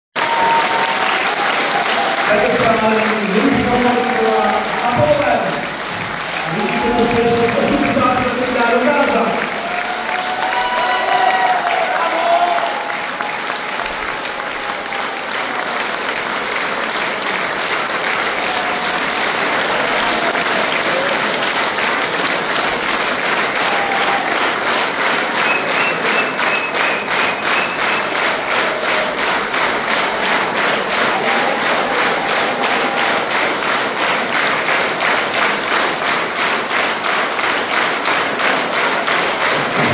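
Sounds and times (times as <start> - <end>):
large audience applauding: 0.2 - 39.9.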